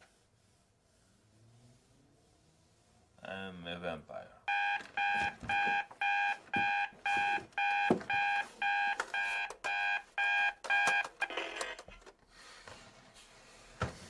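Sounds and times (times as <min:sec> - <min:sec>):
alarm clock beeping: 0:04.5 - 0:11.6.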